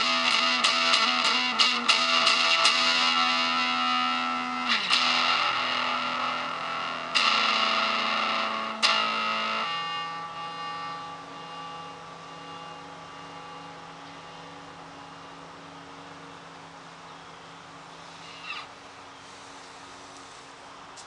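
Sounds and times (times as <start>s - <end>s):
guitar string scratch: 0.0s - 11.8s, 18.0s - 18.8s
electric guitar chord ringing: 0.0s - 18.6s
amp hiss and hum: 0.0s - 21.0s.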